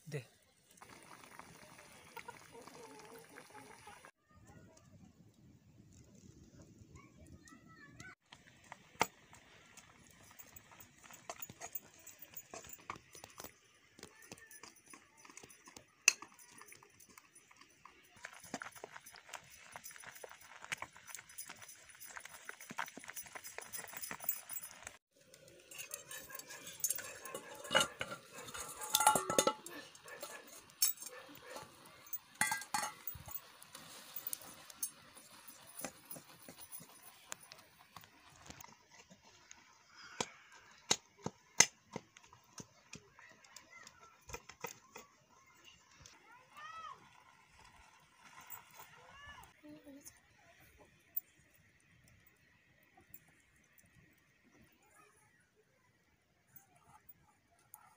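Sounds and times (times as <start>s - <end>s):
faint hiss of boiling: 0.1s - 4.1s
metal ladle scraping iron wok: 25.6s - 34.2s.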